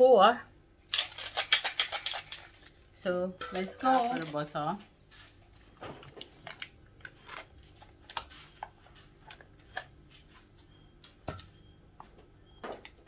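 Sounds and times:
spoon tapping metal bowl: 0:03.4 - 0:04.2.

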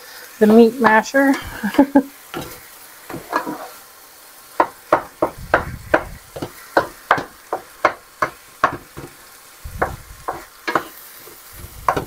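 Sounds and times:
meat sizzling: 0:00.0 - 0:12.0
utensil knocking against pan: 0:02.4 - 0:03.6, 0:04.6 - 0:09.2, 0:09.8 - 0:11.0.

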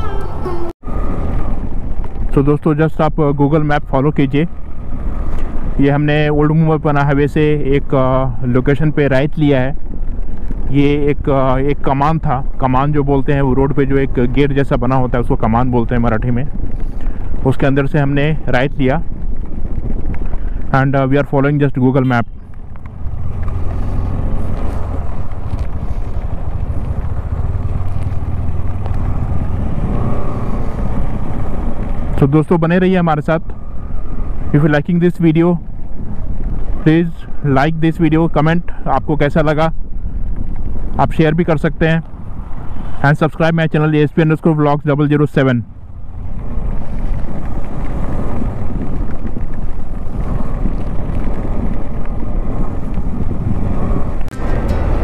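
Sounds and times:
motorcycle engine rumble: 0:00.0 - 0:55.0
road and wind noise: 0:00.0 - 0:55.0
motorcycle engine running: 0:22.0 - 0:32.0, 0:45.7 - 0:55.0.

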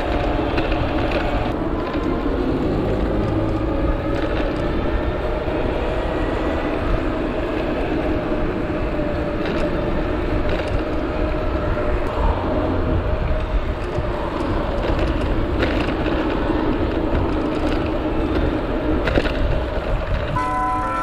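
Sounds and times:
wind rush on microphone: 0:00.0 - 0:21.0
tyre rumble on asphalt: 0:08.0 - 0:20.4.

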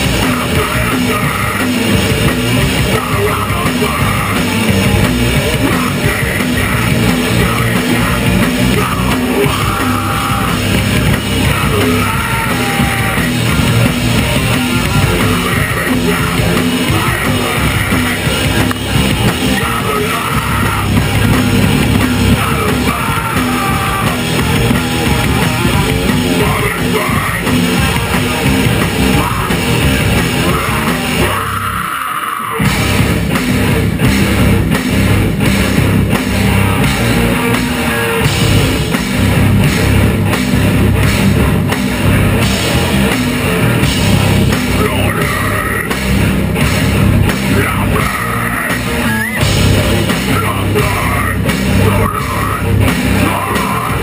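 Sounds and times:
bass guitar: 0:00.0 - 0:54.0
distorted electric guitars: 0:00.0 - 0:54.0
drum kit: 0:00.0 - 0:54.0.

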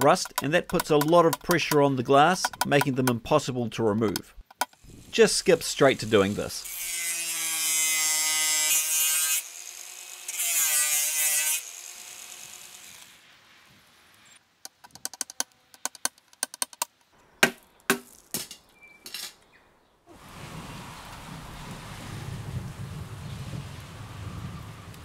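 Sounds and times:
angle grinder cutting steel: 0:05.8 - 0:13.2
steady rain: 0:20.2 - 0:25.0.

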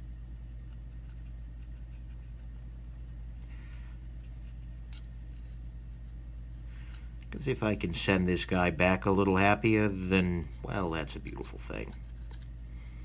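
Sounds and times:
steady low hum: 0:00.0 - 0:13.0
knife parts scraping and ticking: 0:10.1 - 0:12.5.

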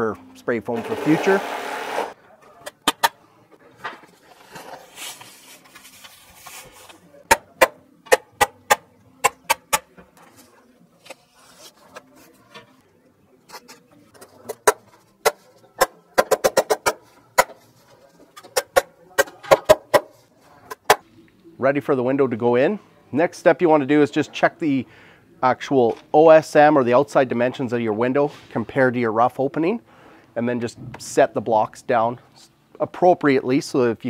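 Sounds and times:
paper rustling: 0:03.8 - 0:07.2, 0:10.2 - 0:12.8.

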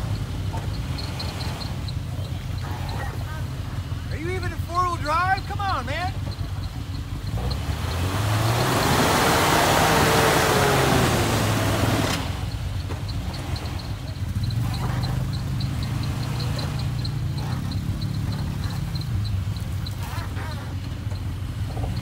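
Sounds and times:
light regular ticking: 0:00.0 - 0:22.0.

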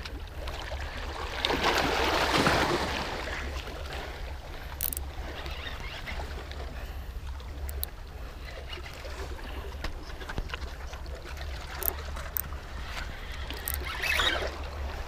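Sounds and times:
water washing against rocks: 0:01.2 - 0:03.5
faint clicks: 0:04.5 - 0:09.1, 0:09.7 - 0:14.4.

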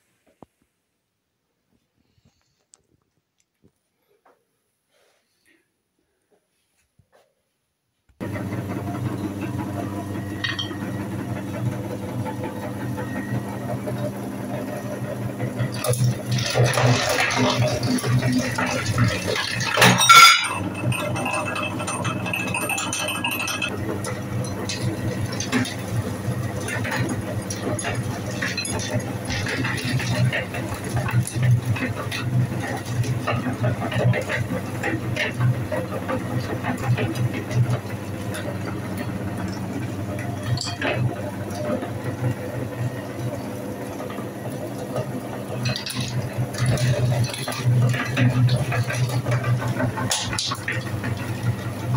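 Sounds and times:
meat grinder motor humming: 0:08.2 - 0:51.9
crayons crunching in grinder: 0:15.6 - 0:20.0.

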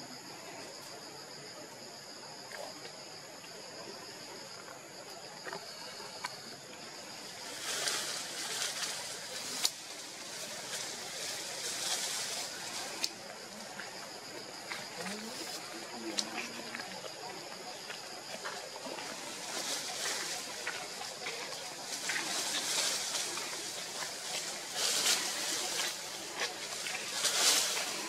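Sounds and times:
insects trilling: 0:00.0 - 0:28.0
leaves and branches rustling: 0:06.8 - 0:28.0.

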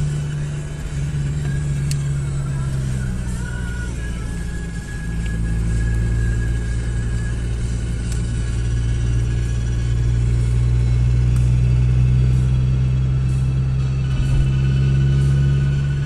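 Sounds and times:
car engine and road drone: 0:00.0 - 0:16.0.

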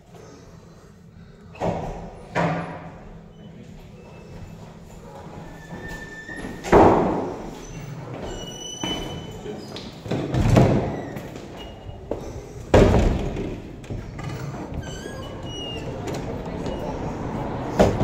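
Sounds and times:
heavy doors thudding shut: 0:05.7 - 0:07.6, 0:10.1 - 0:11.4, 0:12.0 - 0:18.0
high squeaks: 0:14.4 - 0:17.0.

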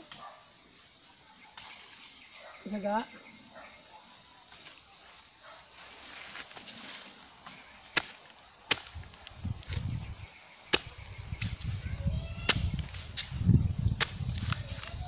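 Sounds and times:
blade chopping palm trunk: 0:07.9 - 0:09.9, 0:10.7 - 0:11.6, 0:12.4 - 0:14.9.

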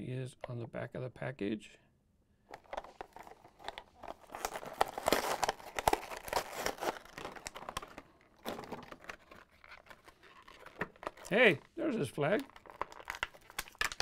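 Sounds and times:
plastic packaging crinkling: 0:02.5 - 0:14.0
cardboard tearing: 0:03.0 - 0:11.4.

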